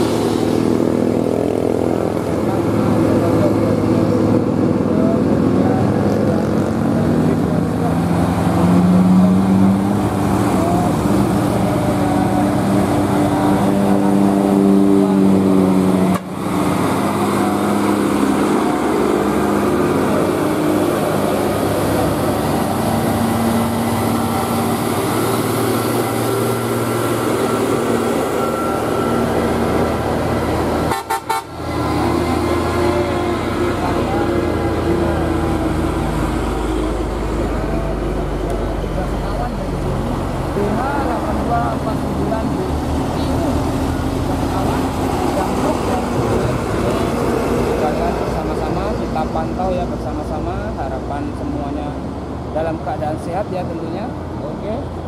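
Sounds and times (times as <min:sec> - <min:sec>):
diesel truck engines under load: 0:00.0 - 0:55.0
truck horn blasts: 0:30.8 - 0:32.2.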